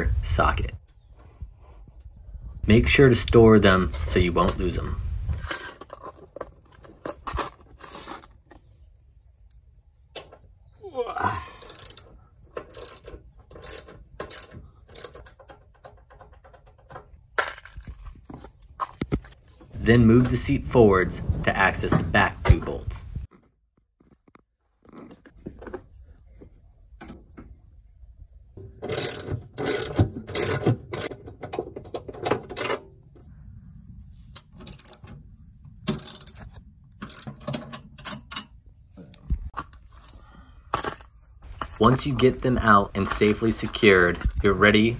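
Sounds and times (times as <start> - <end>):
ratchet wrench clicking: 11.6 - 15.3, 28.9 - 31.1, 34.4 - 35.0, 35.9 - 36.4, 37.0 - 37.3.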